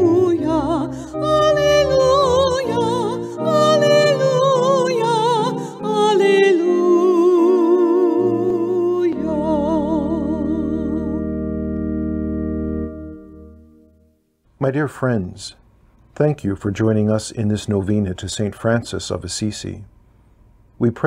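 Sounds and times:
vibrato melody: 0:00.0 - 0:14.2
sustained chords: 0:00.0 - 0:14.4.

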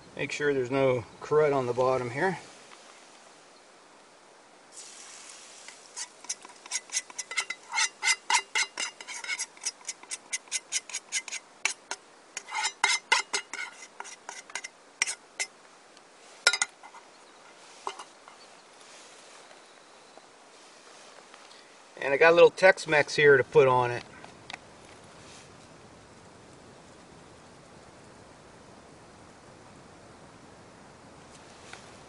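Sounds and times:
utensil scraping a bowl: 0:05.7 - 0:15.5, 0:17.7 - 0:18.5.

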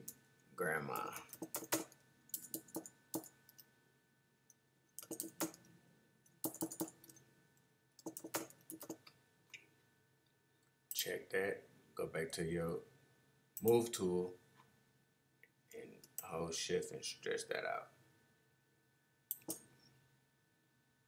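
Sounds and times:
keyboard typing clicks: 0:01.0 - 0:03.6, 0:05.0 - 0:05.6, 0:06.4 - 0:07.2, 0:08.0 - 0:09.0.

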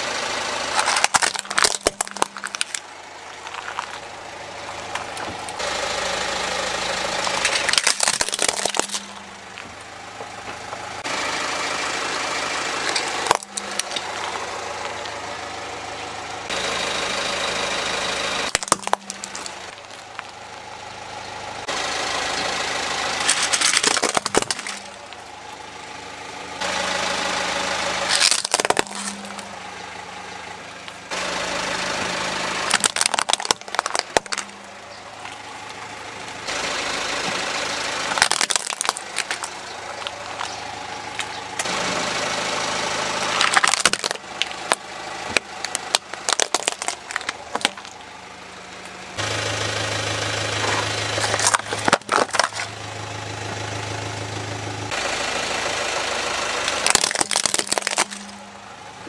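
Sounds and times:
car engine idling: 0:00.0 - 0:59.0
plastic toys cracking and snapping: 0:00.7 - 0:04.0, 0:07.2 - 0:09.2, 0:12.8 - 0:14.3, 0:18.5 - 0:20.3, 0:23.2 - 0:25.2, 0:28.1 - 0:29.5, 0:32.7 - 0:34.6, 0:38.1 - 0:40.6, 0:43.3 - 0:48.0, 0:51.2 - 0:52.7, 0:56.7 - 0:58.4.

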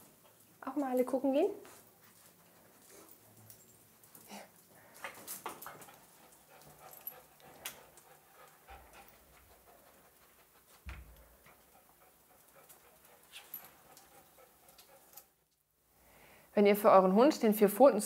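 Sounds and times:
dogs panting: 0:01.6 - 0:15.5.

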